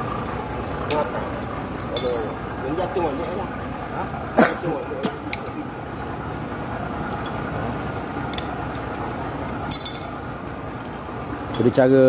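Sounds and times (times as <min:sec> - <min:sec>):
light metallic clinks: 0:00.8 - 0:02.5, 0:07.0 - 0:07.4, 0:08.3 - 0:12.0.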